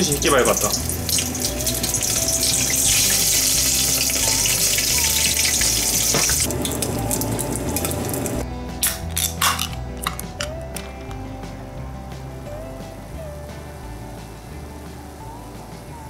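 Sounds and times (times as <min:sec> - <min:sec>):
shrimp sizzling in hot oil: 0:00.0 - 0:08.4.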